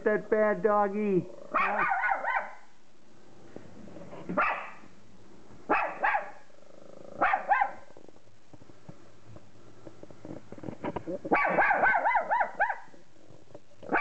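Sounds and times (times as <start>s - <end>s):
small dog barking: 1.5s - 2.7s, 4.4s - 4.8s, 5.7s - 6.5s, 7.2s - 7.9s, 11.3s - 13.0s.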